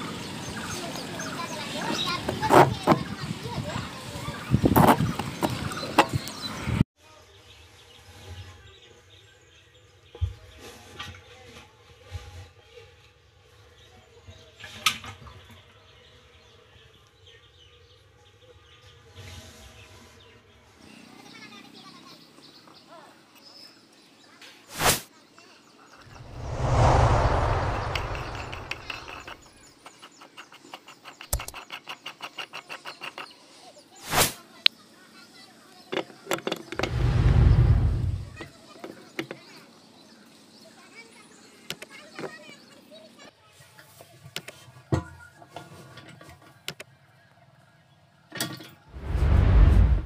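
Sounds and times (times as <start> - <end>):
loud rushing rumble: 26.1 - 29.4, 36.8 - 38.4, 48.9 - 50.0
plastic parts clicking and knocking: 30.6 - 33.2.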